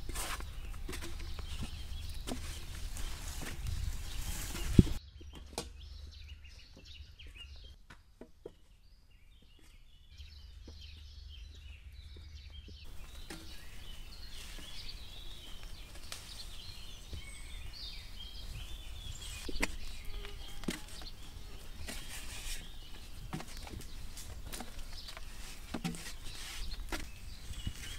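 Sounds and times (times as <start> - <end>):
birds chirping: 0.0 - 7.8, 8.4 - 27.9.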